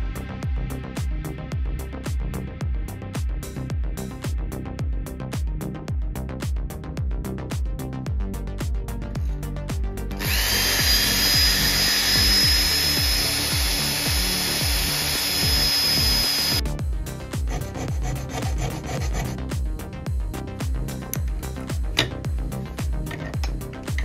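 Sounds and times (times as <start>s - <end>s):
background music with steady beat: 0.0s - 24.0s
power tool cutting steel rod: 10.2s - 16.7s, 17.4s - 19.4s
file scraping metal rod: 17.5s - 19.4s.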